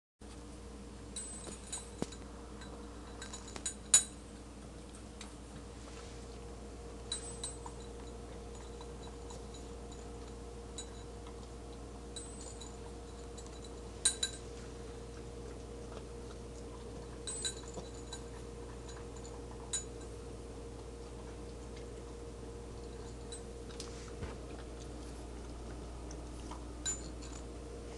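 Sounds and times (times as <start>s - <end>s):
steady low hum: 0.2s - 27.9s
kibble clinking in metal bowl: 1.2s - 4.3s, 12.1s - 14.6s, 17.0s - 20.2s.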